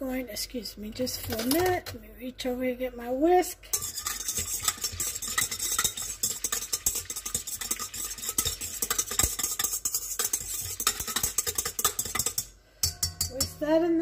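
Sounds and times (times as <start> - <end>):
wire whisk clattering in metal bowl: 3.7 - 13.6.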